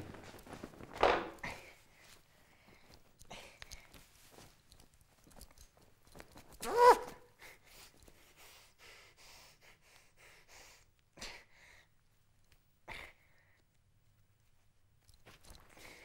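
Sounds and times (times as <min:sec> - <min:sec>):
man's high-pitched vocal squeal: 0:06.6 - 0:07.2.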